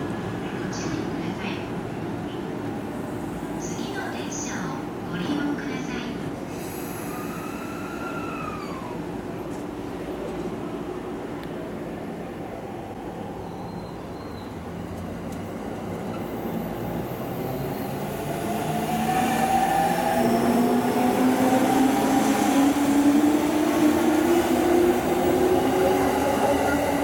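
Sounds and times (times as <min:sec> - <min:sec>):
train wheels on rails: 0:13.6 - 0:27.0.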